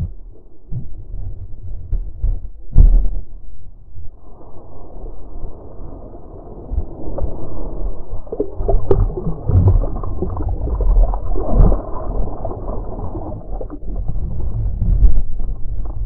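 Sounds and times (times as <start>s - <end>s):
heavy low rumble: 0.0s - 16.0s
muffled underwater sloshing: 4.8s - 16.0s.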